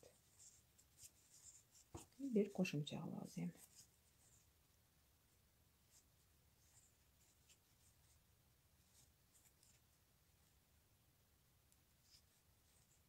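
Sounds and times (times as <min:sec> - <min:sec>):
crochet hook scratching yarn: 0:00.0 - 0:04.5, 0:05.9 - 0:08.2, 0:08.8 - 0:09.8.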